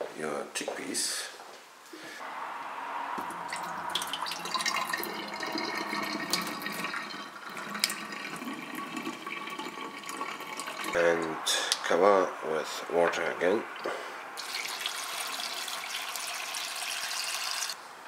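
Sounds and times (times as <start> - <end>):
water pouring into a steel sink: 3.2 - 11.0, 14.4 - 17.8.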